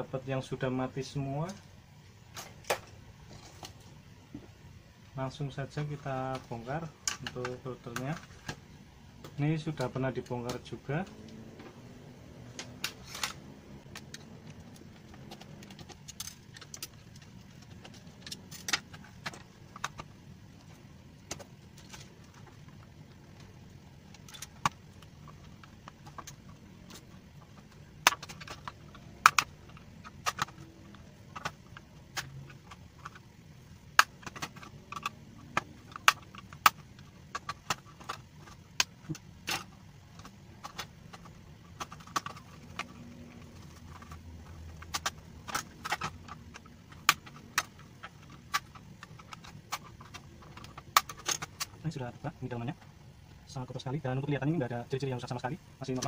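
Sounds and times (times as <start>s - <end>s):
plastic clips snapping: 12.5s - 52.0s.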